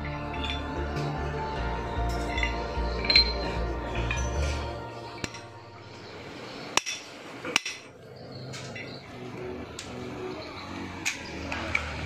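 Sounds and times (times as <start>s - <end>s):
hammer striking metal: 0.0s - 5.8s, 6.7s - 7.9s.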